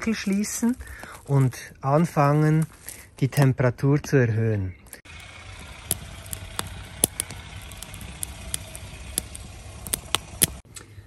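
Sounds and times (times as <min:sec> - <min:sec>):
burning wood crackling: 0:00.0 - 0:03.5, 0:04.9 - 0:10.7
low rumble of flame: 0:05.1 - 0:10.6.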